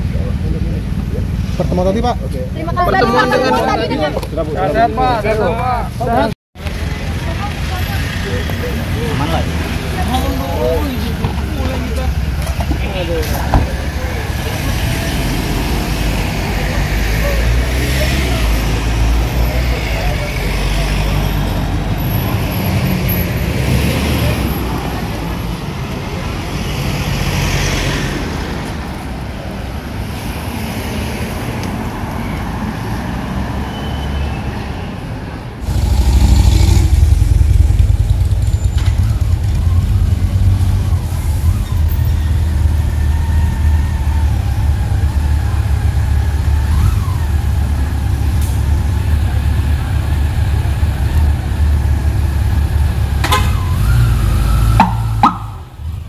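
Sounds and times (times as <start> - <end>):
car and motorcycle engines: 0.0 - 56.0
loud steady low rumble: 35.6 - 38.5.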